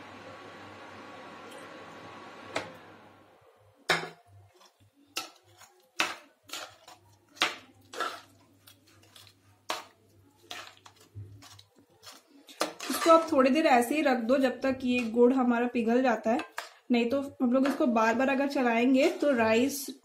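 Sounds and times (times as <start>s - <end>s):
spoon clinking and scraping metal pan: 3.9s - 13.5s, 18.9s - 19.6s.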